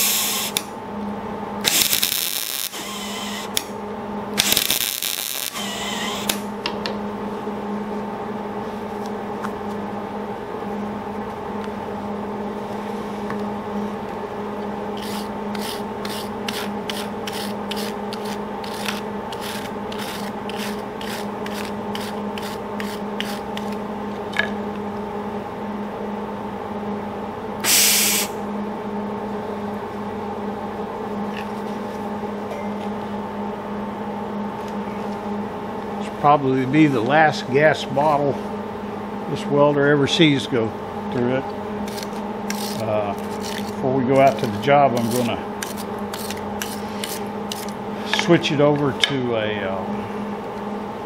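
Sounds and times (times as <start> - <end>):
loud hiss: 0.0 - 0.6, 27.6 - 28.4
welder arc crackling: 0.0 - 0.7, 1.6 - 3.7, 4.4 - 6.5
steady hum: 0.0 - 51.0.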